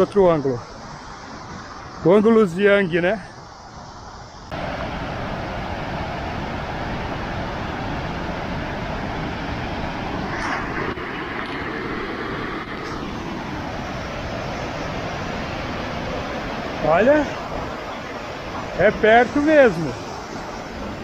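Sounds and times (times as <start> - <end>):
waterfall rushing: 4.5 - 21.0.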